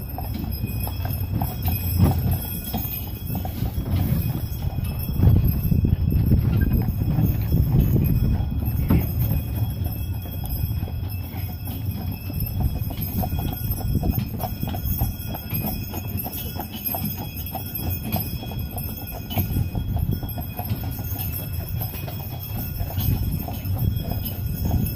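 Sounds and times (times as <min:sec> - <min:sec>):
continuous low rumble: 0:00.0 - 0:15.8
horse hooves clip-clopping on road: 0:00.0 - 0:24.9.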